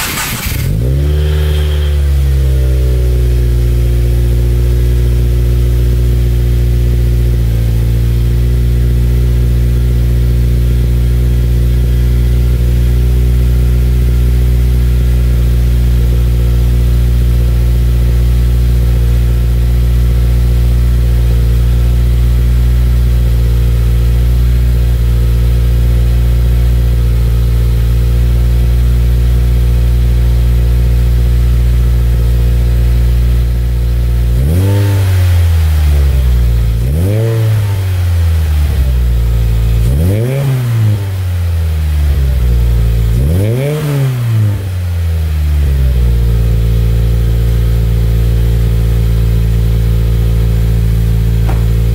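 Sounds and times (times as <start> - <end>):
engine rev blip: 0.0 - 3.4
car engine idling: 0.0 - 43.7, 44.4 - 51.9.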